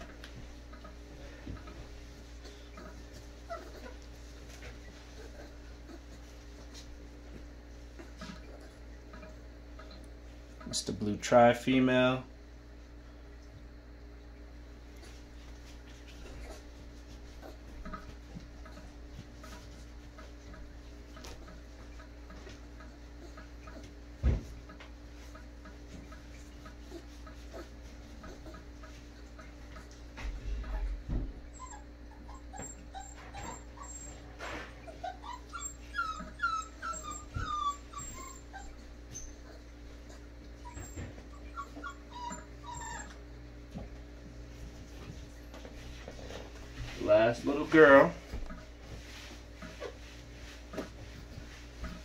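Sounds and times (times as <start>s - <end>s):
puppy whimpering: 0.0s - 6.9s, 7.8s - 10.0s, 16.0s - 43.8s.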